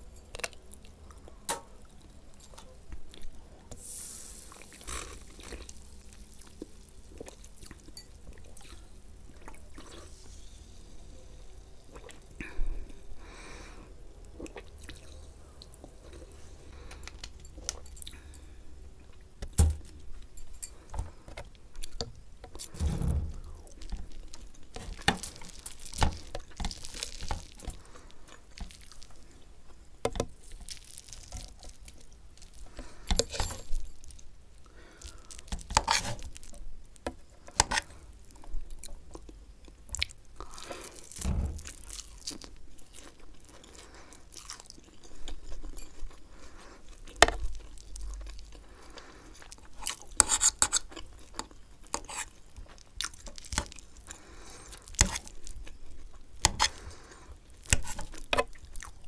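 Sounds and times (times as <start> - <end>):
chewing: 4.5 - 10.4, 11.8 - 13.1, 14.2 - 19.3, 23.4 - 36.6, 37.3 - 59.0.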